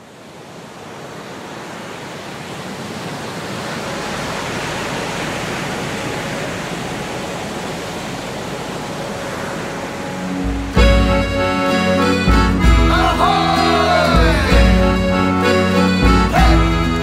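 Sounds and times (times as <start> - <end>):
steady rushing noise: 0.0 - 12.8
faint sustained musical notes: 3.9 - 17.0.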